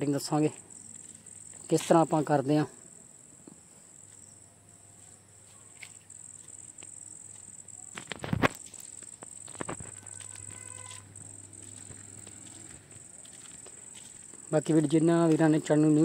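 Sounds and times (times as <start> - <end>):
crickets chirring: 0.0 - 16.0.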